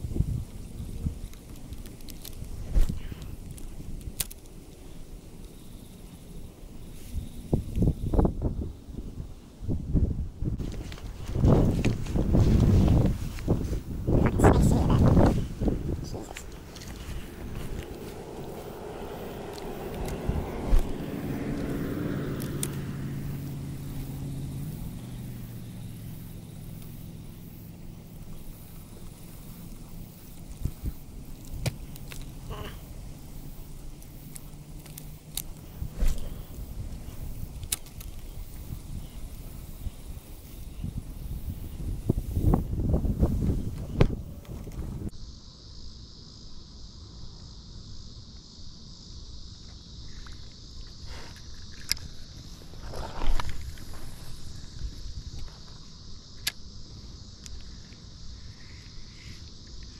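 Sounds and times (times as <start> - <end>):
wind noise on microphone: 0.0 - 4.7, 5.8 - 25.6, 28.2 - 34.5, 35.3 - 45.2
insects chorus: 0.0 - 59.9
passing vehicle engine hum: 10.2 - 45.1.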